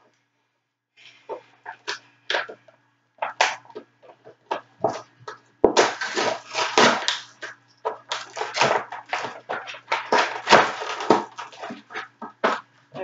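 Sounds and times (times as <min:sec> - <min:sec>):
cardboard packaging tearing: 0:05.7 - 0:12.6.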